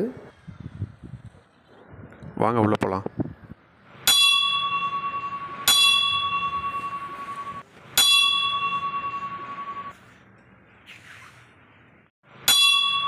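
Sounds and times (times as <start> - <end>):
brass temple bell ringing: 4.1 - 9.9, 12.5 - 13.0.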